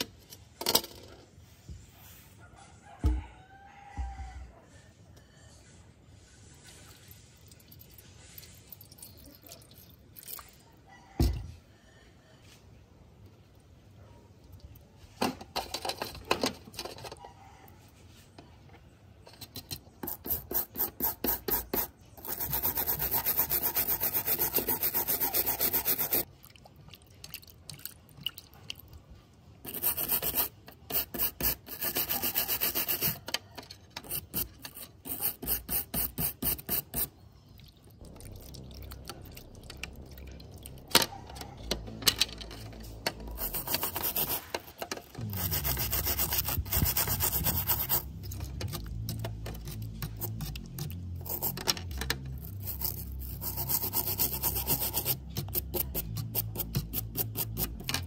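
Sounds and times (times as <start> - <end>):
brush scrubbing metal: 20.0 - 26.3, 29.6 - 33.3, 34.0 - 37.2, 42.6 - 58.0.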